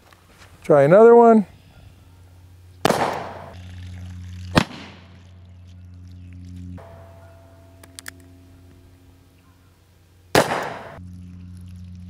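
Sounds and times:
revolver gunshot: 0:02.8 - 0:03.6, 0:04.5 - 0:05.1, 0:10.3 - 0:11.0.

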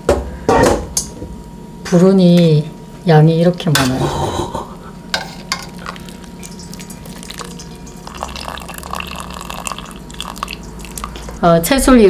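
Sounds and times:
liquid dripping and splashing into pot: 0:05.5 - 0:11.4.

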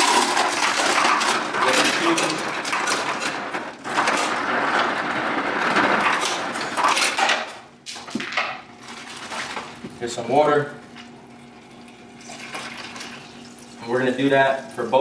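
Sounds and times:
ice cubes clattering into plastic cup: 0:00.0 - 0:03.3.

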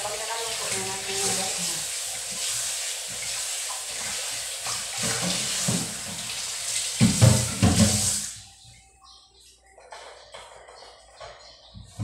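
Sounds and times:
faucet running into sink: 0:00.0 - 0:08.3.

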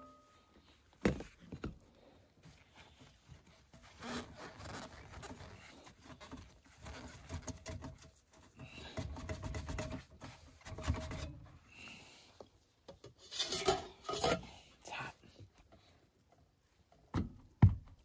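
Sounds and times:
metal pipe scraping on metal: 0:13.2 - 0:14.6.

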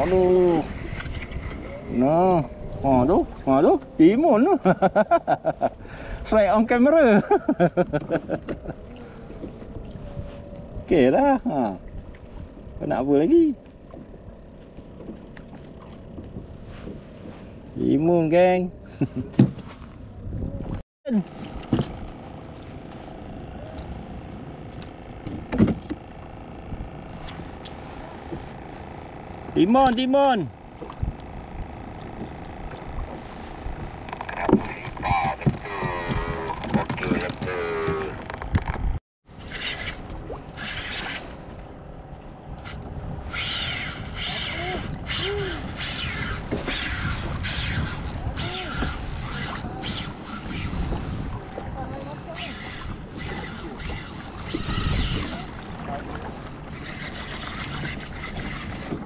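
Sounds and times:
water noise: 0:00.0 - 0:59.0
wind: 0:00.0 - 0:59.0
fishing reel drag ratcheting: 0:42.6 - 0:51.0, 0:52.4 - 0:55.7, 0:56.7 - 0:59.0.

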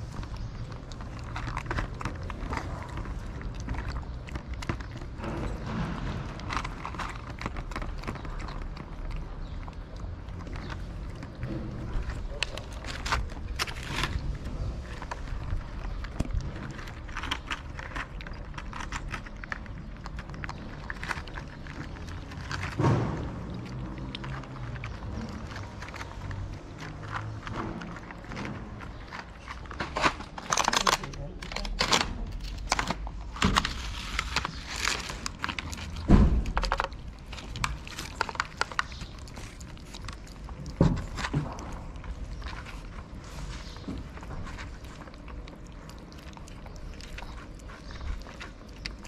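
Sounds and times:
cat chewing wet food: 0:00.0 - 0:49.0
louder bump: 0:22.8 - 0:23.5.

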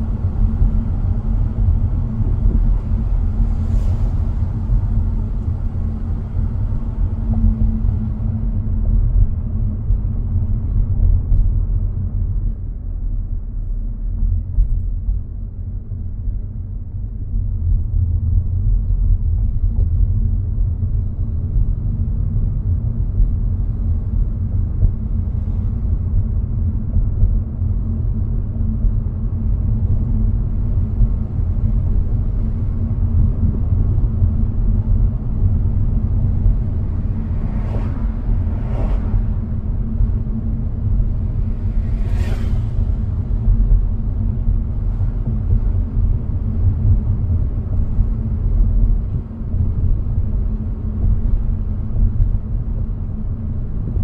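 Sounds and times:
car engine and tyre rumble: 0:00.0 - 0:54.0
brief whoosh: 0:37.0 - 0:39.5, 0:41.5 - 0:43.0.

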